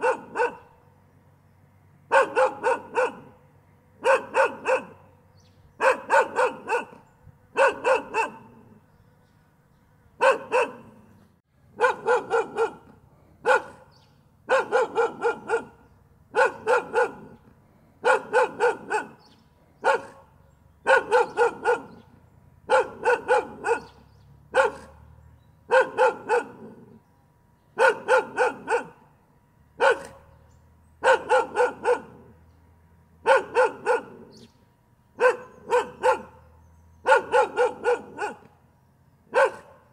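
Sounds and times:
dog barking: 0.0 - 0.8, 2.1 - 3.4, 4.0 - 5.1, 5.8 - 8.8, 10.2 - 11.1, 11.8 - 17.4, 18.0 - 25.1, 25.7 - 27.0, 27.8 - 29.1, 29.8 - 30.4, 31.0 - 32.4, 33.2 - 34.5, 35.2 - 38.5, 39.3 - 39.9.

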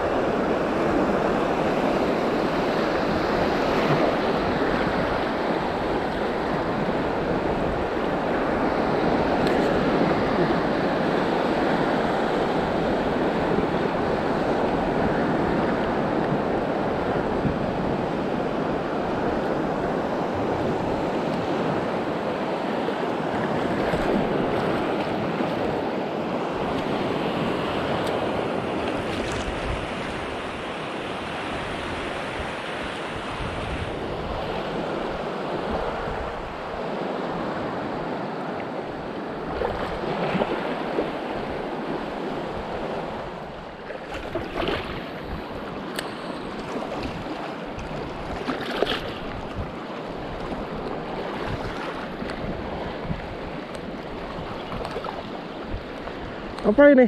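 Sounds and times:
small waves lapping: 22.6 - 37.0, 37.6 - 57.0.

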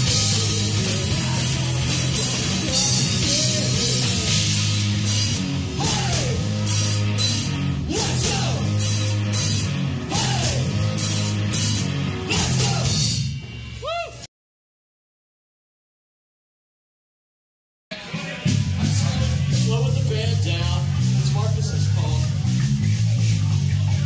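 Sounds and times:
electric guitar: 0.0 - 13.3
bass guitar notes: 0.0 - 14.2, 17.9 - 24.0
drum kit with cymbals: 0.0 - 14.2, 17.9 - 24.0.

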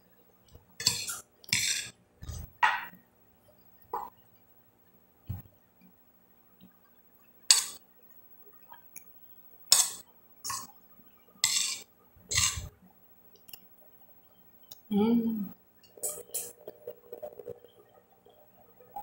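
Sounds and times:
metal spoon scraping glass plate: 11.4 - 12.7.

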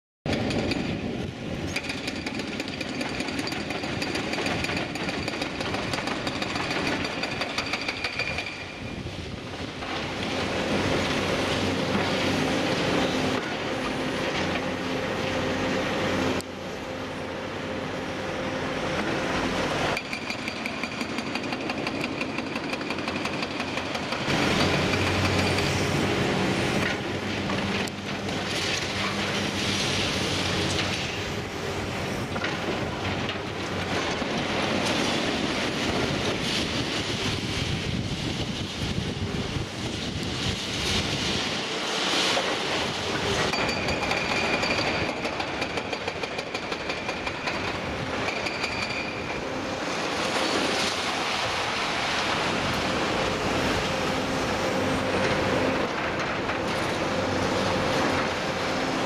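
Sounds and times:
excavator engine running: 52.0 - 59.0.

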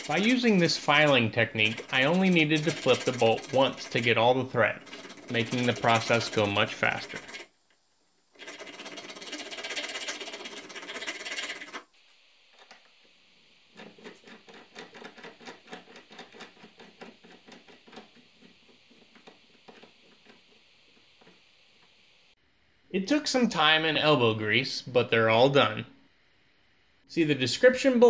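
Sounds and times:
file rasping on metal threads: 0.0 - 4.0, 4.8 - 7.5.

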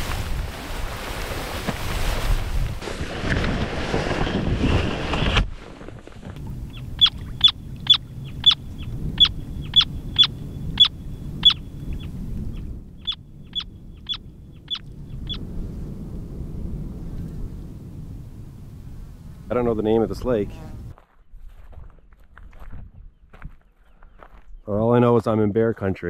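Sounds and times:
wind noise and rustling: 0.0 - 24.7
plover sharp high calls: 6.7 - 12.1.

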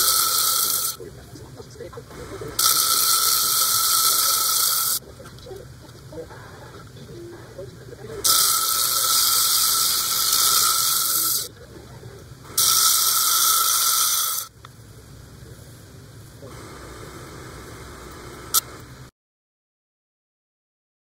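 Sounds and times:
lap running quietly: 0.0 - 12.6
stone grinding with high squeal: 2.6 - 5.0, 8.2 - 11.5, 12.6 - 14.5.

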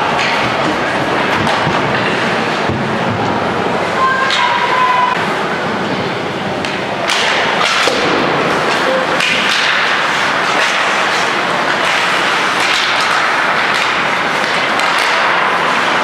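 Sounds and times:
hockey sticks and puck clacking: 0.0 - 5.2, 6.6 - 16.0
skates scraping on ice: 7.2 - 16.0.

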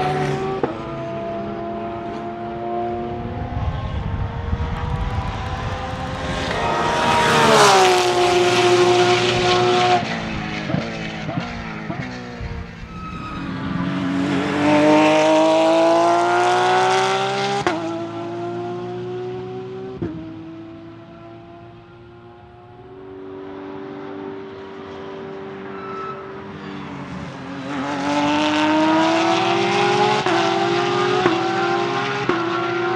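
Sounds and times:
race car engine accelerating: 0.0 - 25.6, 27.0 - 32.9.

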